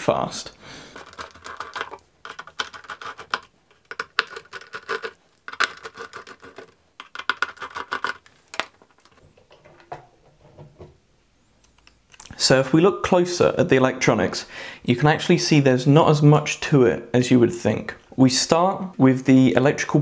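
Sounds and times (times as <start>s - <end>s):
screwdriver clicking and scraping: 1.0s - 9.2s.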